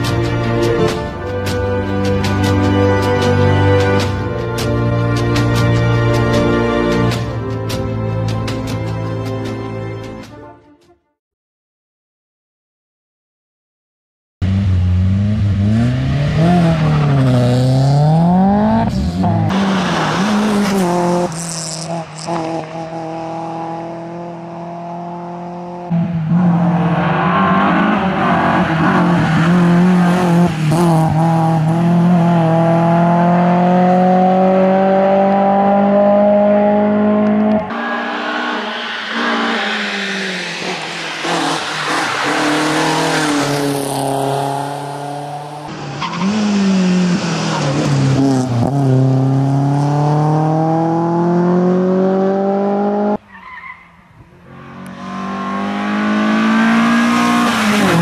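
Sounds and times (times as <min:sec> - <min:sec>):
rally car engine revving: 0:14.4 - 0:53.2, 0:54.3 - 0:58.0.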